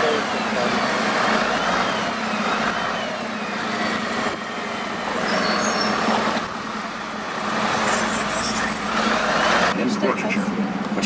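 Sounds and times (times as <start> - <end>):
bus engine hum: 0.0 - 11.0
road noise: 0.0 - 11.0.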